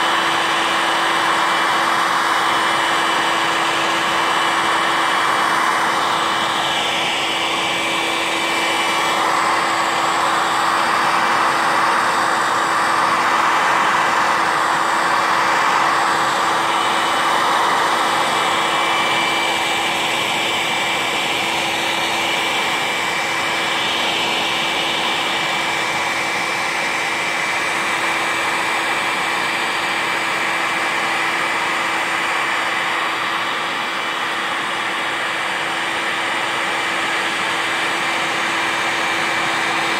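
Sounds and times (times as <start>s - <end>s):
heat gun blowing air: 0.0s - 39.9s.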